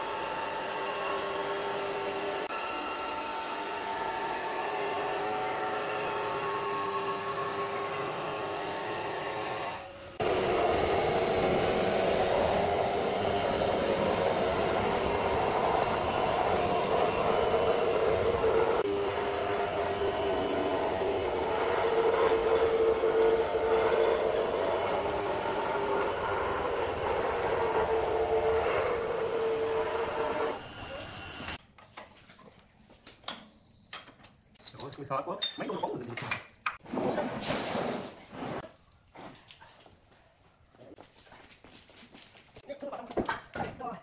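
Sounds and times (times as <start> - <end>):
stone grinding machine with water: 0.0 - 31.6.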